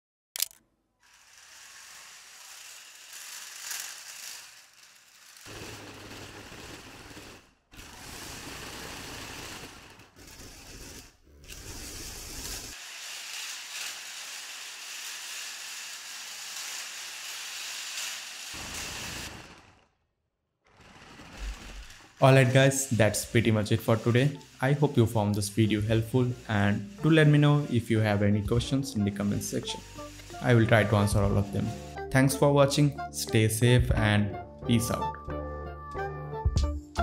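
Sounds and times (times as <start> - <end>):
small gear motors whirring: 0.4 - 6.7, 7.8 - 19.8
wheel rollers rattling on wooden floor: 2.7 - 10.7, 20.6 - 25.0.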